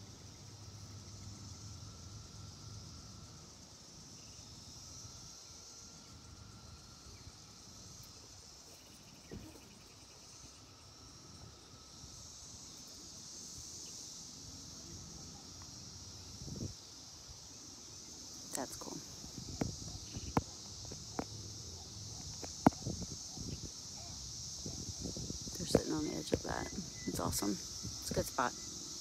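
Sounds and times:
insect chorus drone: 0.0 - 29.0.

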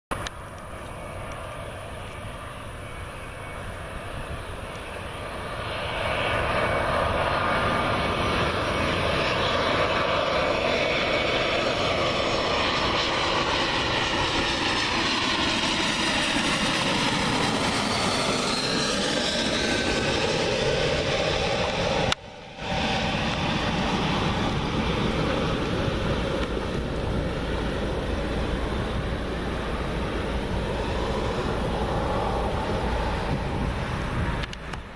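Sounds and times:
dull jet rumble: 0.1 - 34.9
jet airliner passing overhead: 0.1 - 34.9.

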